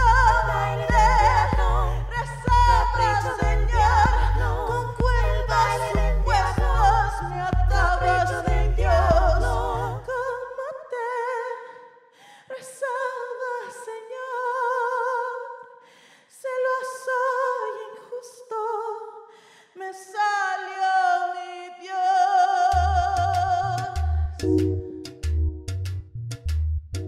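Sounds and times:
low backing beat: 0.0s - 9.8s, 24.4s - 27.0s
woman singing with vibrato: 0.0s - 15.7s, 16.3s - 19.2s, 19.8s - 24.4s.

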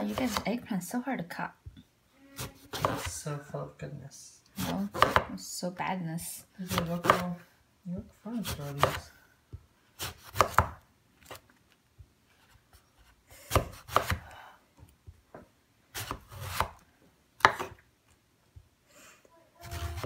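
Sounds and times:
knife slicing eggplant: 0.0s - 0.6s, 2.4s - 3.2s, 4.6s - 5.4s, 6.6s - 7.4s, 8.4s - 9.1s, 10.0s - 11.4s, 13.5s - 14.3s, 15.9s - 16.8s, 17.4s - 17.8s, 19.6s - 20.0s.

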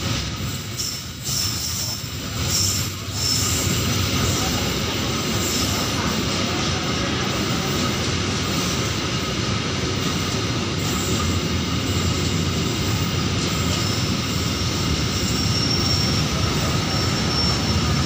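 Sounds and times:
freight wagons rumbling on rails: 0.0s - 18.0s
high-pitched wheel squeals: 0.7s - 3.7s, 13.6s - 18.0s.

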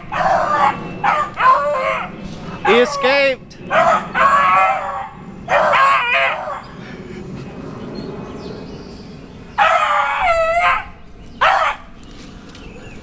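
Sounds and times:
dog baying: 0.0s - 6.6s, 9.6s - 11.9s.

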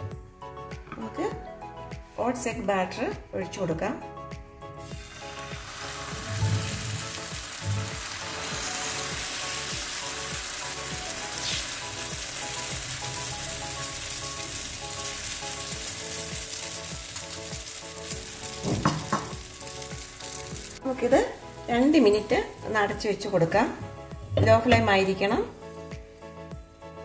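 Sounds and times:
batter sizzling in a pan: 4.8s - 23.5s.

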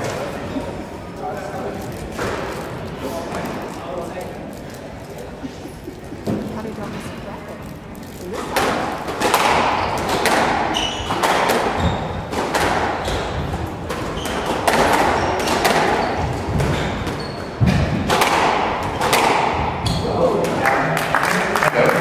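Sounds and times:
squash ball hitting rackets and walls: 2.0s - 3.8s, 8.3s - 20.7s
sneaker squeaks on wooden floor: 9.5s - 17.9s, 19.8s - 20.2s.

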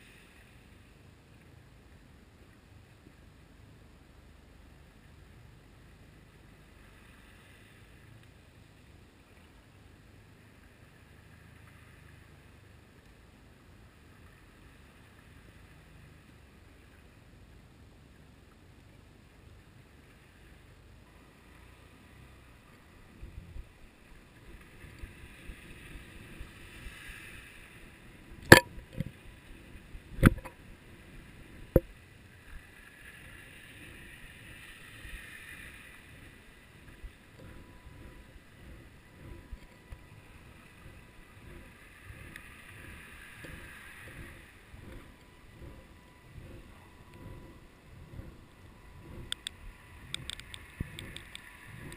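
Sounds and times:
muffled underwater noise: 22.6s - 51.9s
low underwater thumps: 36.8s - 51.9s.

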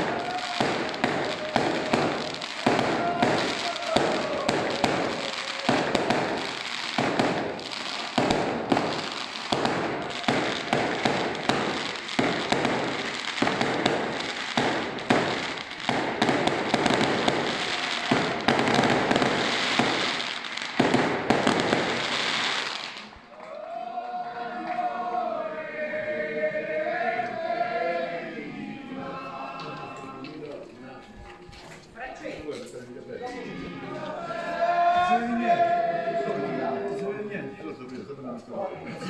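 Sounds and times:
firecrackers banging and crackling: 0.0s - 23.2s.

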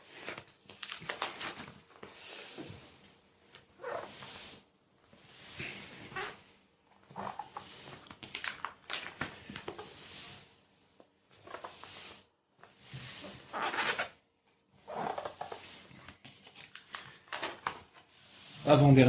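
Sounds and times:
plastic sleeves crinkling: 0.1s - 2.0s, 7.3s - 9.8s, 15.0s - 18.7s.

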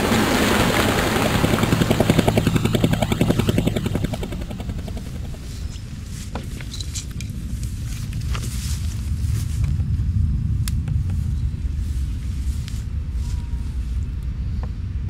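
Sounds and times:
helicopter rotor chopping: 0.0s - 7.8s.

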